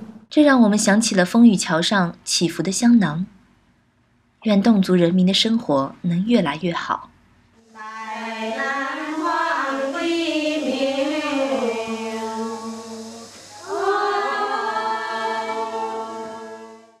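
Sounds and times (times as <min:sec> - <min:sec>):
choir singing unaccompanied: 0:07.6 - 0:17.0
low held drone note: 0:07.6 - 0:17.0.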